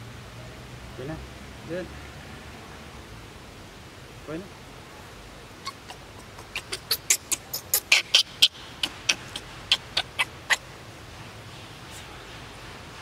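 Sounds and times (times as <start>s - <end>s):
monkey squeaking: 5.6s - 10.6s.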